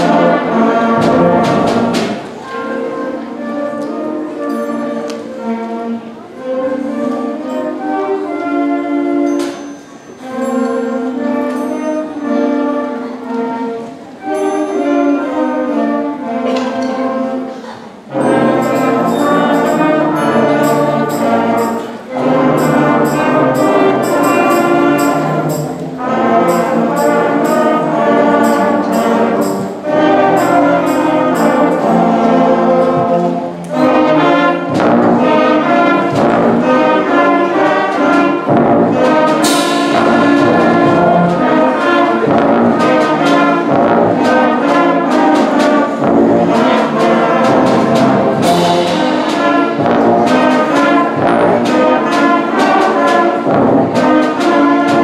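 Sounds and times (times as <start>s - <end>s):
concert band playing: 0.0s - 55.0s
cymbal crash: 39.4s - 41.3s.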